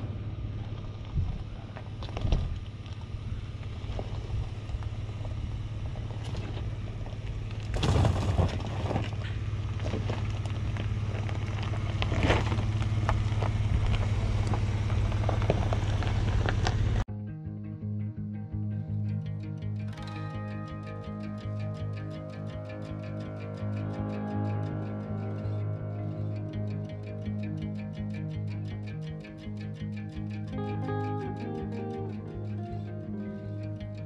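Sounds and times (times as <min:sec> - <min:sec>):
engine humming: 0:00.0 - 0:17.1, 0:18.6 - 0:34.0
tyres crunching on gravel and rock: 0:00.5 - 0:17.0.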